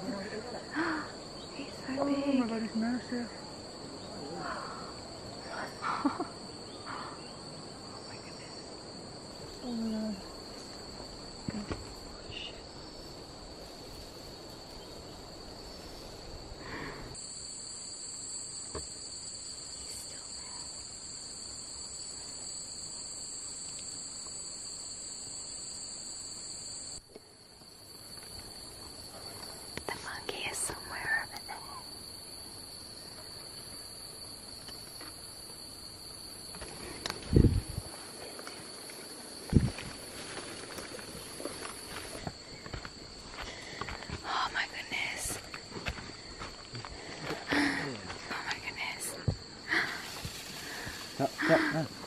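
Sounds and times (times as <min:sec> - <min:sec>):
insects droning: 0:00.0 - 0:52.0.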